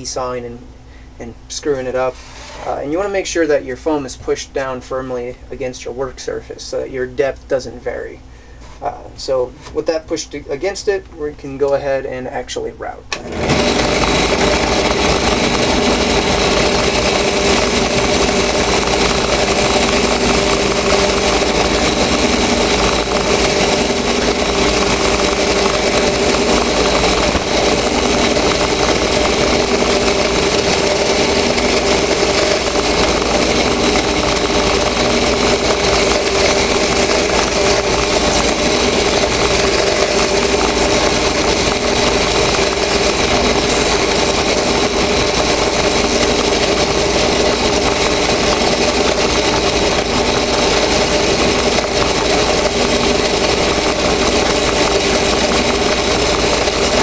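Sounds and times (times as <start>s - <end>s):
drill press motor running: 13.1s - 57.0s.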